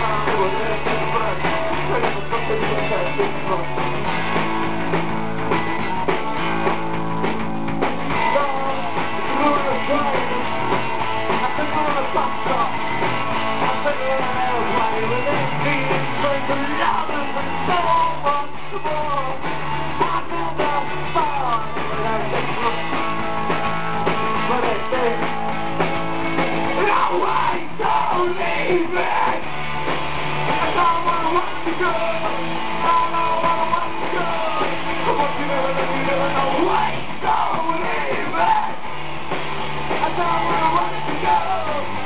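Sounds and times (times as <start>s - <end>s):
person singing into a microphone: 0.0s - 3.9s, 8.2s - 10.6s, 11.3s - 12.8s, 13.6s - 23.0s, 26.8s - 29.4s, 30.6s - 38.8s, 39.9s - 42.0s
bass: 0.0s - 42.0s
drums: 0.0s - 42.0s
electric guitars: 0.0s - 42.0s.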